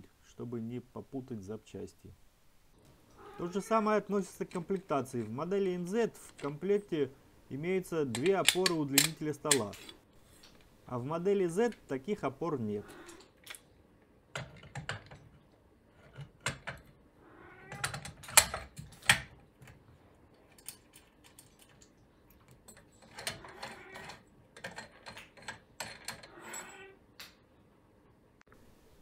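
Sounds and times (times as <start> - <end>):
metal rods clicking and scraping: 4.2 - 6.8, 8.0 - 10.7.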